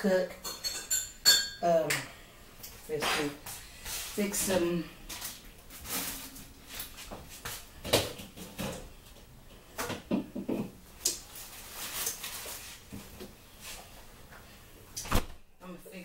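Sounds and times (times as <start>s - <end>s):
items knocking and clunking in fridge: 7.1s - 9.0s, 9.7s - 10.8s.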